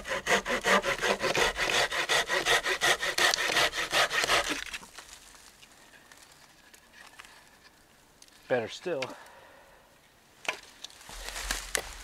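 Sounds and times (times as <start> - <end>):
hand saw cutting branch: 0.0 - 4.8.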